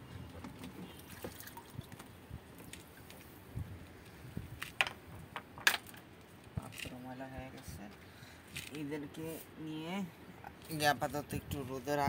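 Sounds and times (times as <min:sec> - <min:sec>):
water sloshing and dripping: 0:00.0 - 0:03.4.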